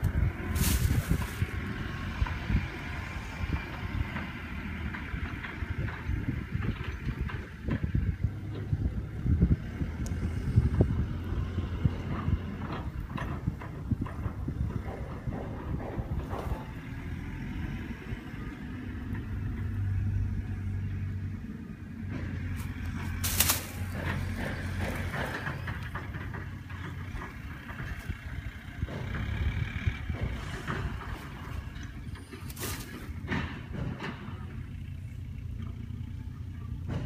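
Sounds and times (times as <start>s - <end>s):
engine humming: 0.0s - 37.0s.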